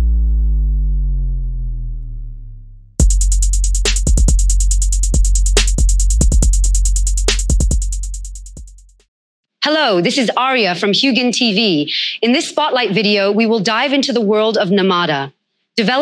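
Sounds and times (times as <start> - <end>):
deep falling electronic tone: 0.0 - 3.4
deep sustained bass: 0.0 - 8.6
drum-machine beat: 3.0 - 9.1.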